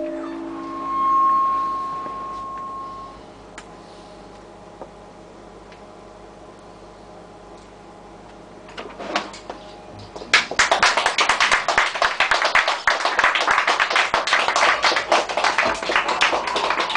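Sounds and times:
quiet music with soft strikes: 0:00.0 - 0:03.3
audience applause: 0:10.3 - 0:16.9.

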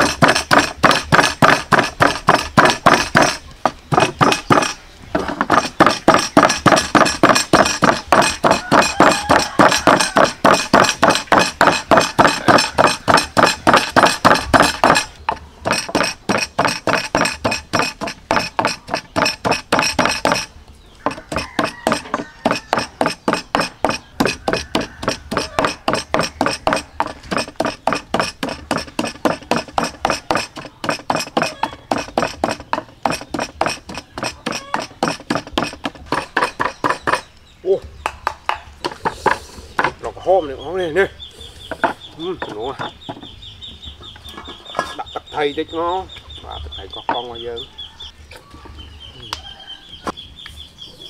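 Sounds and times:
wooden pestle pounding in mortar: 0:00.0 - 0:37.3.

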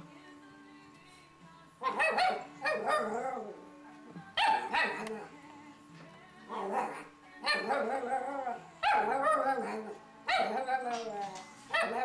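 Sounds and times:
puppy barking: 0:01.8 - 0:03.4, 0:04.4 - 0:05.2, 0:06.5 - 0:08.1, 0:08.8 - 0:11.0, 0:11.7 - 0:12.0.

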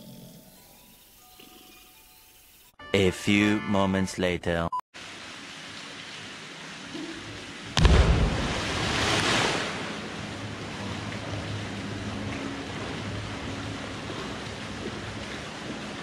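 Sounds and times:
loud splash into water: 0:07.8 - 0:10.0
water sloshing from swimming: 0:08.4 - 0:16.0.

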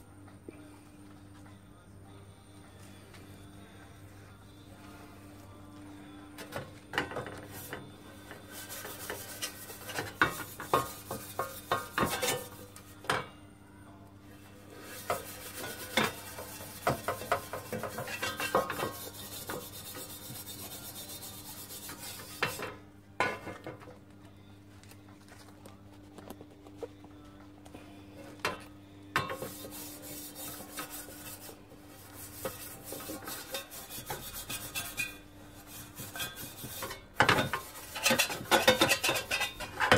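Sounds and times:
steel wool scraping copper pan: 0:06.4 - 0:13.2, 0:14.6 - 0:22.8, 0:29.2 - 0:39.9.

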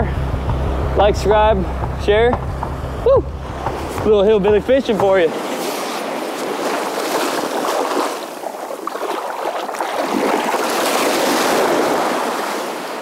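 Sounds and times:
small waves washing ashore: 0:03.4 - 0:13.0.

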